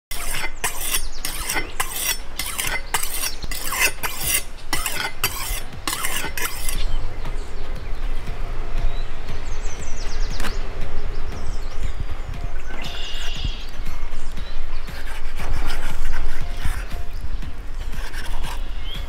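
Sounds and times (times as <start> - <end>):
knife scraping on sharpening stone: 0.1 - 6.9, 15.0 - 17.2, 17.9 - 19.0.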